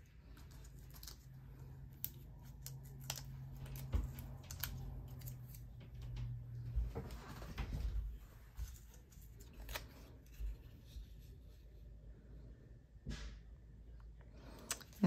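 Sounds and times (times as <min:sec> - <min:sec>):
soft paper clicks and crackles: 0:00.0 - 0:06.4.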